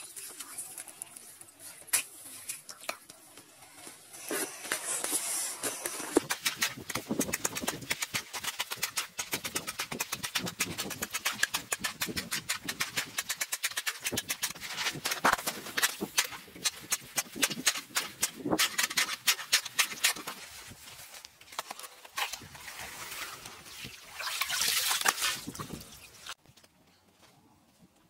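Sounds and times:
chisel scraping through slush: 0:04.2 - 0:20.4
ice chisel chipping ice: 0:04.5 - 0:20.4.

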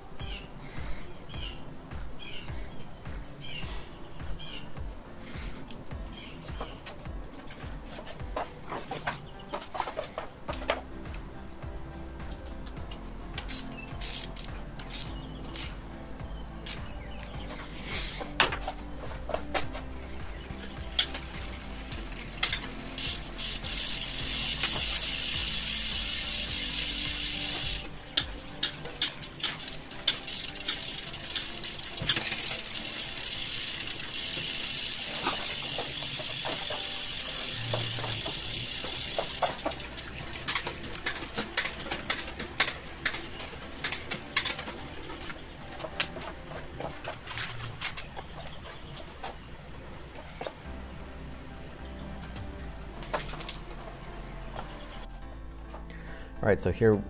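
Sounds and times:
bicycle chain running: 0:10.5 - 0:46.2
freewheel ratchet buzzing: 0:13.4 - 0:15.9, 0:20.1 - 0:45.2.

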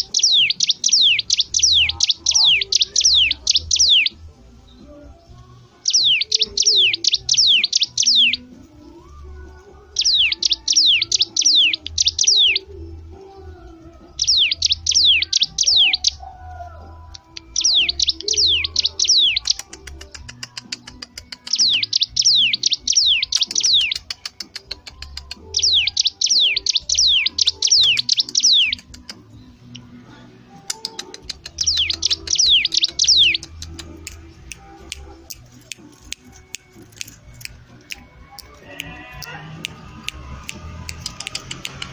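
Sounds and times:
songbird whistling song: 0:00.0 - 0:41.9
fast sharp clicks: 0:30.7 - 0:41.9.

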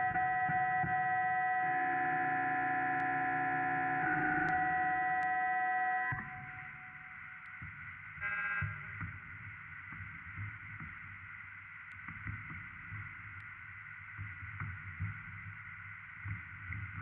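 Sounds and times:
buzzy electronic tone: 0:00.0 - 0:06.4
electronic hiss and buzz: 0:00.0 - 0:17.0
low crackles and pops: 0:00.0 - 0:17.0.

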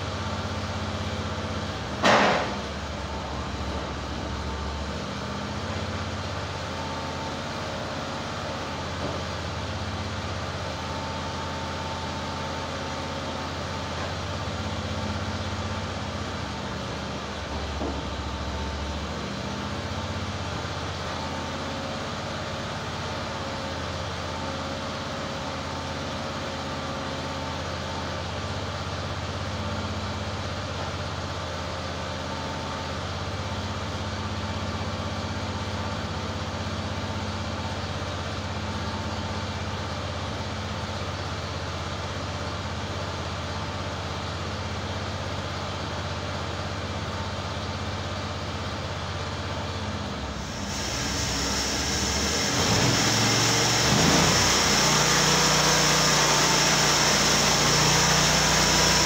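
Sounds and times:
gasoline engine running: 0:27.3 - 0:59.0.

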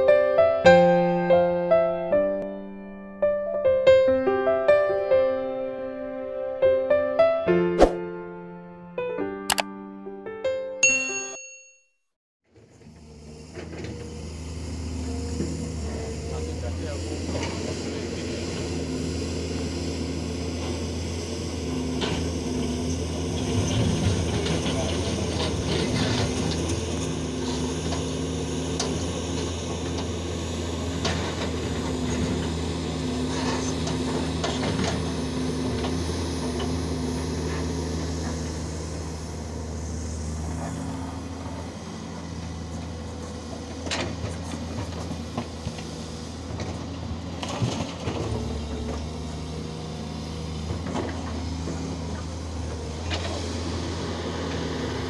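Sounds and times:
excavator diesel engine running: 0:12.5 - 0:55.0.

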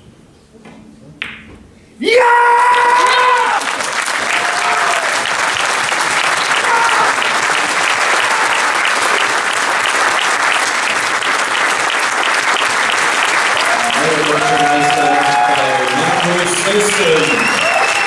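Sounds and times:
people shouting: 0:02.0 - 0:03.6, 0:06.6 - 0:07.2, 0:13.7 - 0:16.4
audience applauding: 0:02.6 - 0:18.0.

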